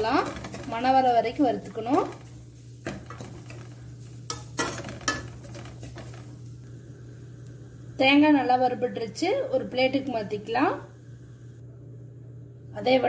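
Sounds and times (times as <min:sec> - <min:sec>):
metal spoon scraping pan: 0:00.0 - 0:06.4.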